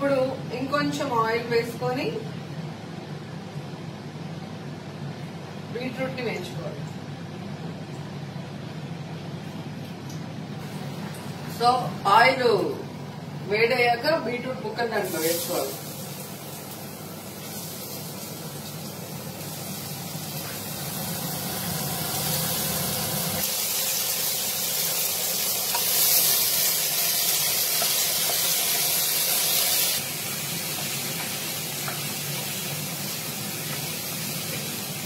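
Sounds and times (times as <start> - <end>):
beetroot frying in pan: 14.4 - 35.0.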